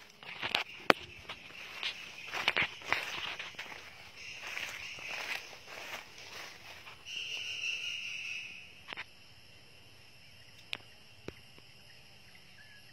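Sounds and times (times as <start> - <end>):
footsteps on wood chips and leaves: 0.0 - 7.5.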